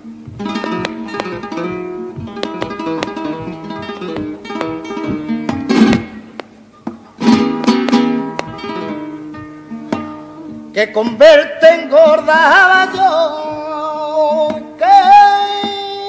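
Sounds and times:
flamenco guitar melody: 0.0 - 16.0
loud guitar strums: 0.4 - 6.6, 7.2 - 10.4
person singing: 10.4 - 16.0.

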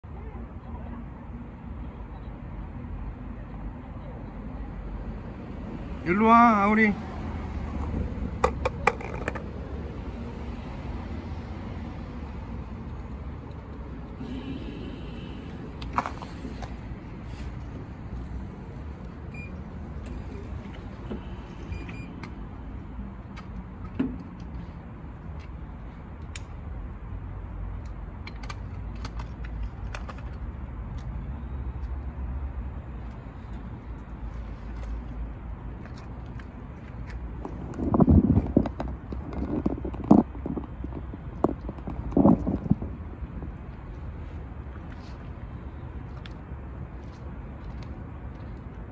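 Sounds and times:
distant traffic: 0.0 - 48.9
steady low rumble: 36.5 - 46.2.

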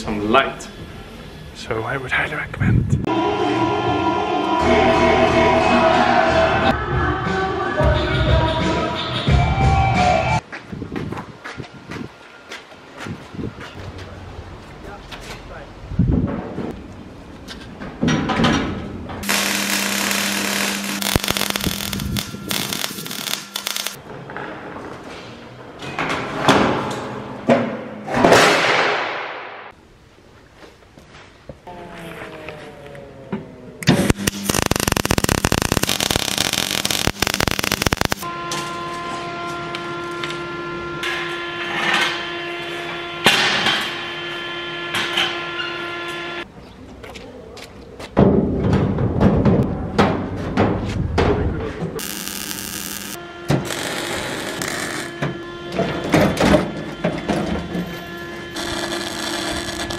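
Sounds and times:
electric arc welding crackle: 19.2 - 24.0, 34.0 - 38.3, 52.0 - 55.1, 58.5 - 59.9
steady background tone: 19.2 - 24.5, 52.0 - 59.9.

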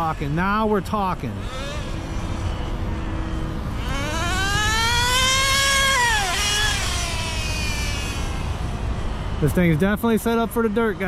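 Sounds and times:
model engine revving whine: 0.0 - 9.7.

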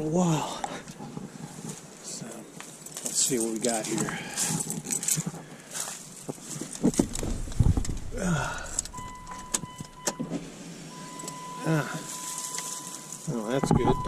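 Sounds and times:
thumps and rustling climbing in: 2.6 - 10.5
truck door opening: 6.8 - 10.5
key clicking in ignition: 8.7 - 10.3, 11.2 - 11.4
high electronic warning tone: 8.9 - 10.3, 10.9 - 14.0.

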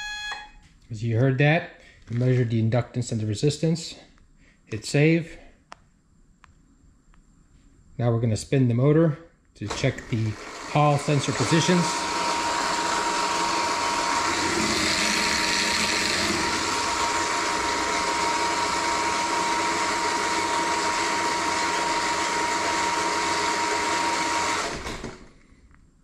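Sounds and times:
electric motor whirring: 9.9 - 25.1.

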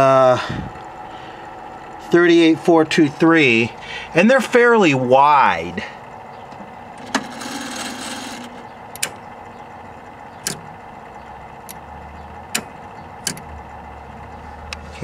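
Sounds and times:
low steady hum: 0.0 - 15.0
relays clicking: 6.4 - 13.8.

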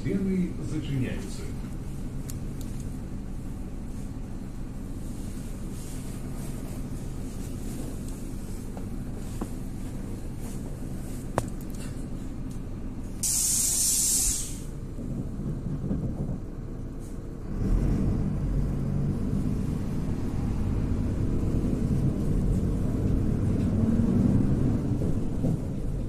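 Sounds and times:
bus diesel engine rumbling: 0.0 - 26.0
air brakes hissing: 13.2 - 14.8.

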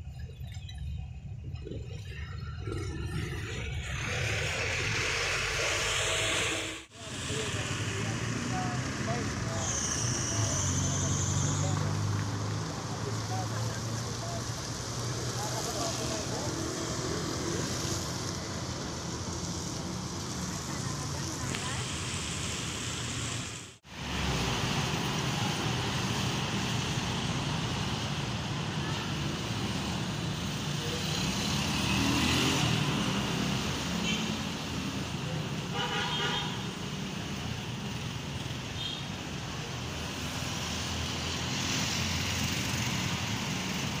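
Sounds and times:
motorcycles passing: 2.2 - 44.0
cars passing on a wet street: 2.4 - 44.0.

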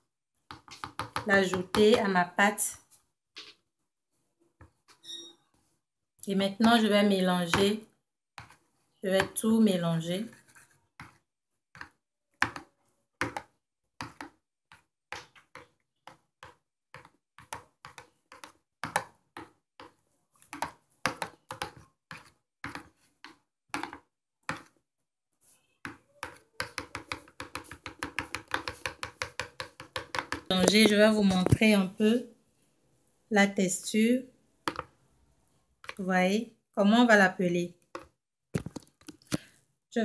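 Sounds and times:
spoon scraping plastic bowl: 10.0 - 11.2, 25.9 - 31.8.

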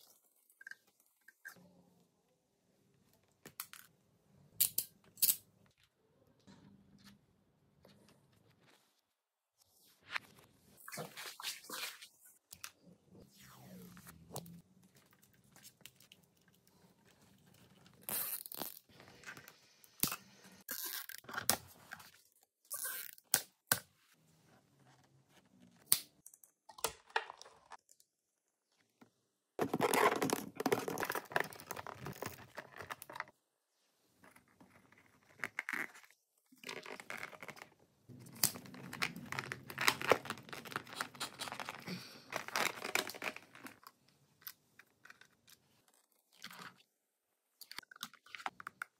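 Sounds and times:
plastic tubing rustling: 38.5 - 43.8.

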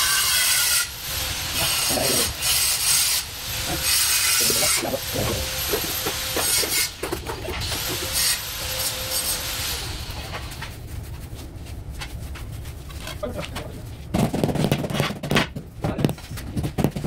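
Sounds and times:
trowel scraping mortar: 1.5 - 9.7.

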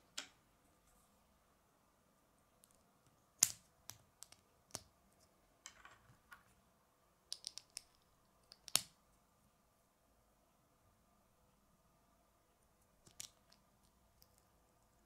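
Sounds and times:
plastic bricks clicking together: 7.3 - 8.9.

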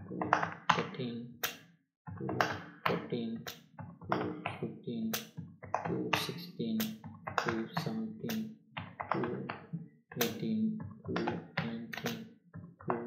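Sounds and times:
man speaking: 0.0 - 1.5, 2.2 - 3.5, 4.1 - 8.5, 9.1 - 9.6, 10.2 - 12.2.

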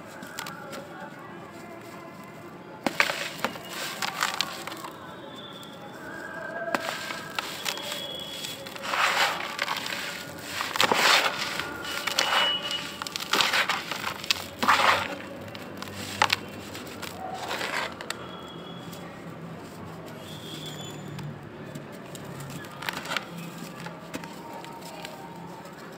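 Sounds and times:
hands crushing dry blocks: 0.0 - 1.1, 1.8 - 18.3, 19.7 - 25.9
crackling clicks of fragments: 6.6 - 18.3.

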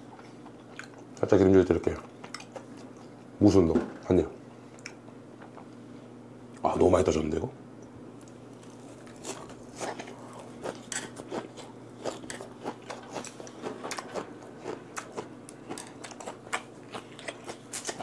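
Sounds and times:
wet chewing crunches: 8.2 - 18.0.

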